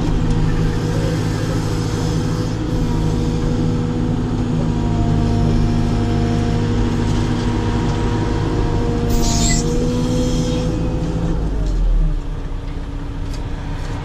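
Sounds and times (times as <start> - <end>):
hydraulic whine: 9.1 - 9.9.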